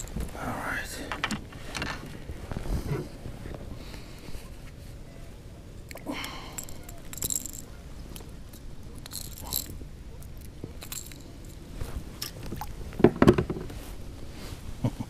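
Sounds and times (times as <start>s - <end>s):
handling clicks and rattles: 0.0s - 0.4s, 1.0s - 2.6s, 6.2s - 13.8s.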